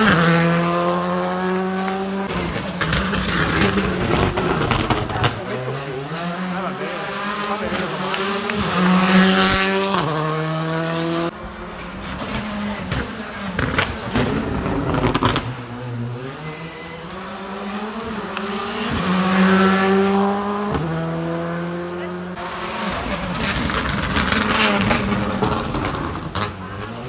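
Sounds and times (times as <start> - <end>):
rally car engine revving: 0.0 - 27.0
exhaust cracks and pops: 12.9 - 15.6, 23.4 - 26.6.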